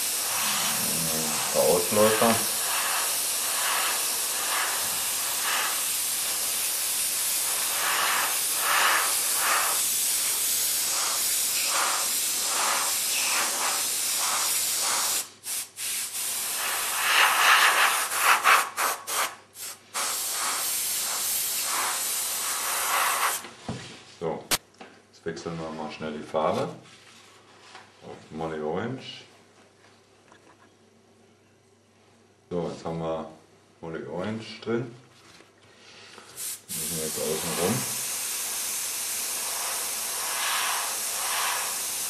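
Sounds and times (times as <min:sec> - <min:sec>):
airbrush spraying hiss: 0:00.0 - 0:23.4, 0:36.4 - 0:42.0.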